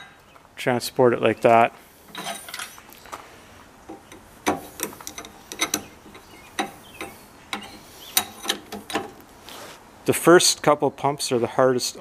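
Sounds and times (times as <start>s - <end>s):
hydraulic jack handle clicking: 3.9s - 9.2s.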